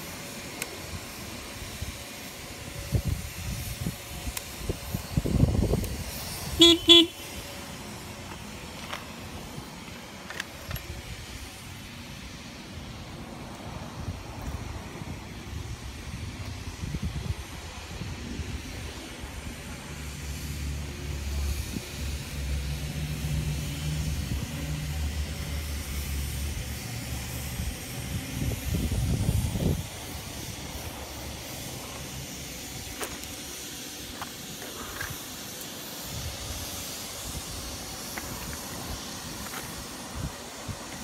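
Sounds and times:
steady hiss: 0:00.0 - 0:41.0.

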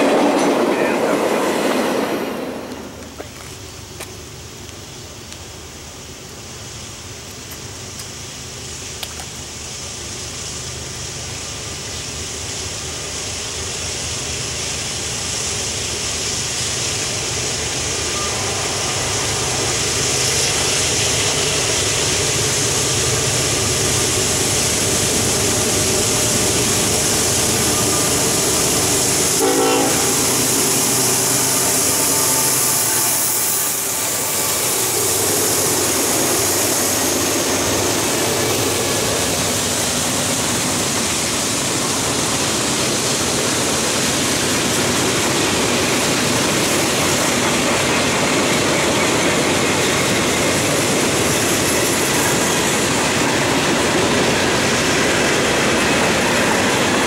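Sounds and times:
diesel locomotives passing: 0:00.0 - 0:57.0
freight cars rumbling on rails: 0:00.0 - 0:57.0
train horn blast: 0:29.3 - 0:30.6, 0:31.4 - 0:33.4.

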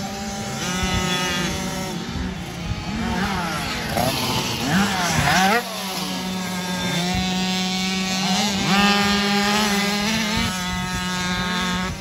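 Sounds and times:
motocross bike engines revving: 0:00.0 - 0:12.0.

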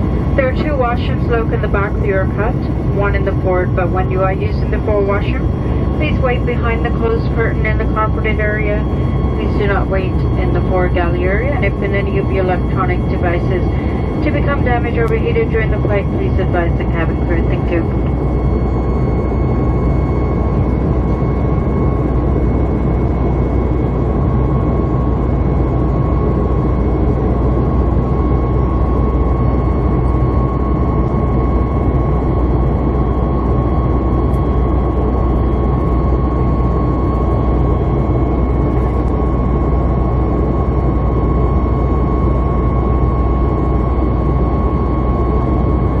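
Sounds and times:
airplane cabin drone with whine: 0:00.0 - 0:46.0.

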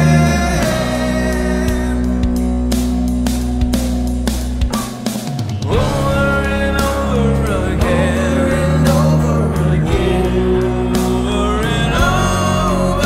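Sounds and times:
man singing: 0:00.0 - 0:02.5, 0:05.6 - 0:13.0
bass guitar: 0:00.0 - 0:13.0
drums: 0:00.0 - 0:13.0
electric guitar: 0:00.0 - 0:13.0.

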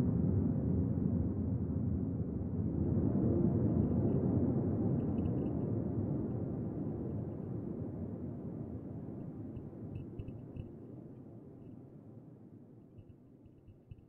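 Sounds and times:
faint high ticks: 0:05.0 - 0:05.7, 0:09.2 - 0:10.7, 0:13.0 - 0:14.0.

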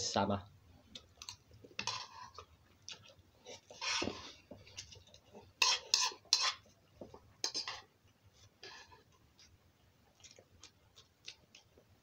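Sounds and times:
metal spoon scraping a bowl: 0:01.8 - 0:02.4, 0:03.5 - 0:04.4, 0:05.6 - 0:06.7, 0:07.4 - 0:07.8.

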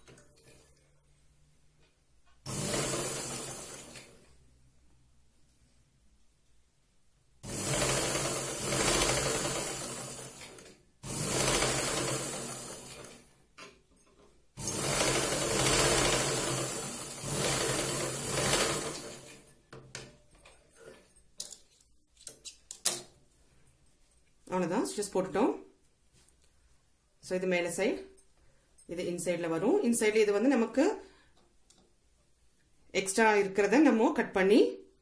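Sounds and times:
sewing machine running: 0:02.5 - 0:04.2, 0:07.4 - 0:13.3, 0:14.6 - 0:19.5.

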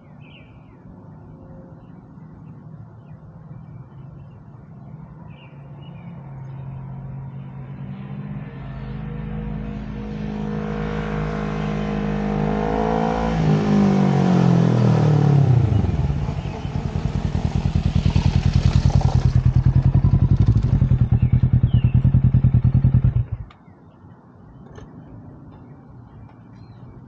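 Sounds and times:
motorcycle engine revving: 0:08.2 - 0:23.5.

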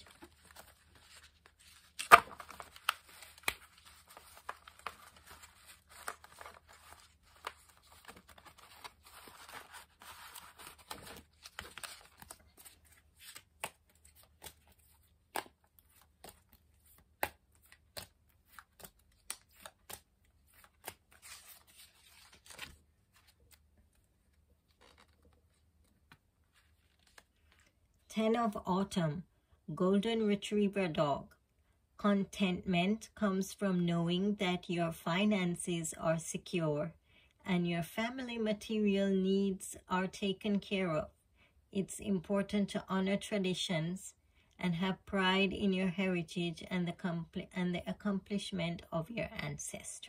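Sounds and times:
cards being shuffled: 0:00.0 - 0:27.7.

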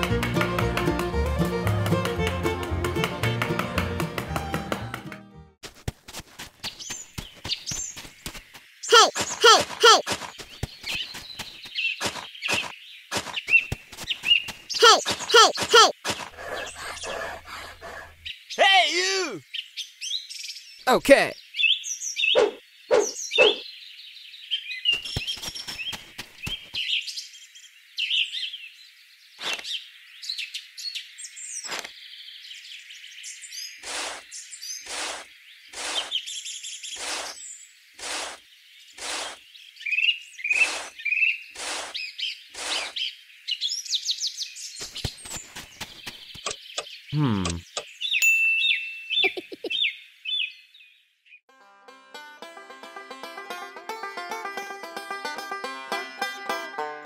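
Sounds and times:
small birds chirping: 0:06.4 - 0:51.5.

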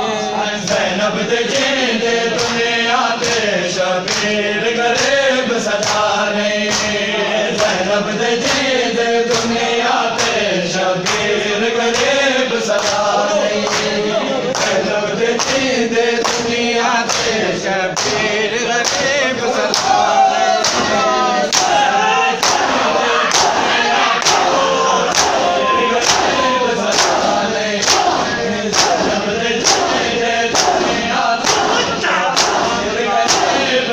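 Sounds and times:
men chanting in unison: 0:00.0 - 0:33.9
hand slaps on bare chests: 0:03.2 - 0:04.3, 0:04.9 - 0:07.0, 0:10.2 - 0:10.4, 0:11.9 - 0:12.2, 0:12.8 - 0:14.0, 0:17.1 - 0:17.4, 0:18.8 - 0:20.0, 0:20.6 - 0:20.9, 0:21.5 - 0:21.8, 0:22.4 - 0:33.7.

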